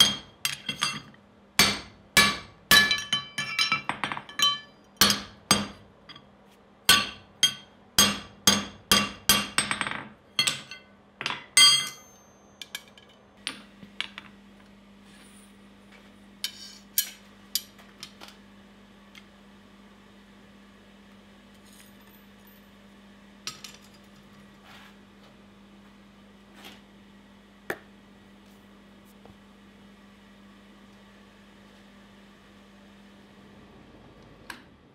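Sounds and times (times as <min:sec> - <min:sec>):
hammer striking metal on anvil: 0:00.0 - 0:01.0, 0:01.6 - 0:05.8, 0:06.9 - 0:13.1
metal tools clinking on anvil: 0:00.0 - 0:01.2, 0:02.7 - 0:05.2, 0:09.7 - 0:13.2
steady low hum: 0:00.0 - 0:34.9.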